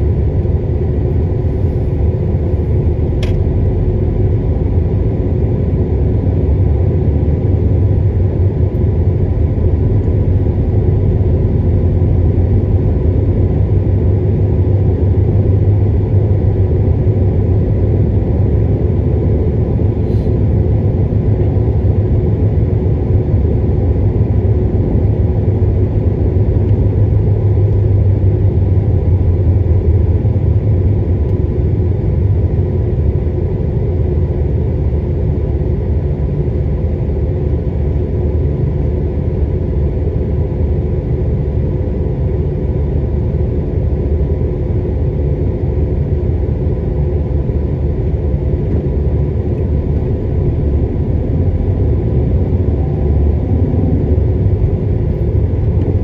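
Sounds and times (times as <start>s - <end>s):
car engine and tyre rumble: 0.0s - 56.0s
brief click: 3.2s - 3.4s.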